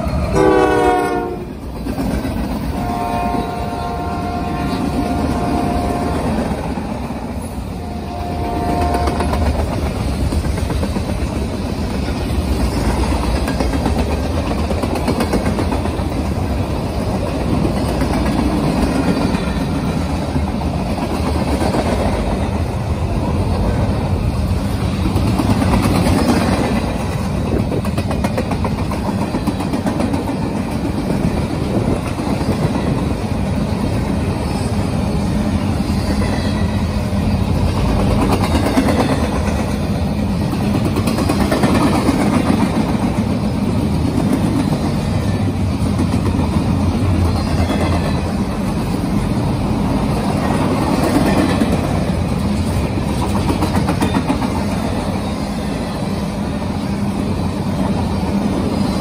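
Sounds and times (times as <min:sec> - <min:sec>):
freight train rolling past: 0:00.0 - 0:59.0
steel wheels rumbling on rail: 0:00.0 - 0:59.0.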